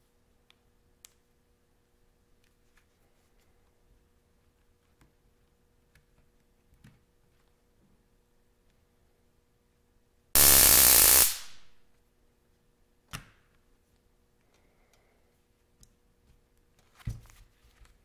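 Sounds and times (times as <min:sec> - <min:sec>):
electrical crackle of sparking: 0:10.4 - 0:11.8.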